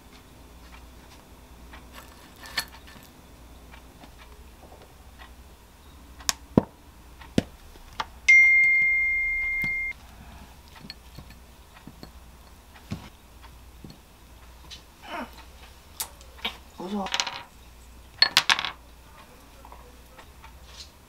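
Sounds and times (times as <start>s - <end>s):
electronic beep: 8.3s - 10.0s.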